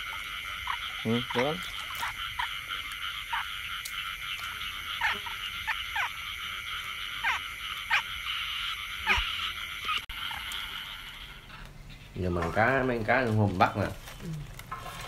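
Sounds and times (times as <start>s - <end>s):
frog calls dropping in pitch: 0.0s - 11.4s
frog chorus hum: 0.0s - 15.0s.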